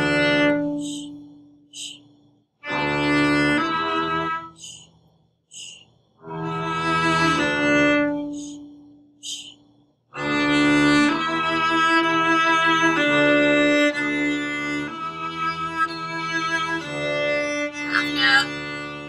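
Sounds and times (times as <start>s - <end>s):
viola bowed slurred notes: 0.0s - 1.9s, 10.2s - 19.0s.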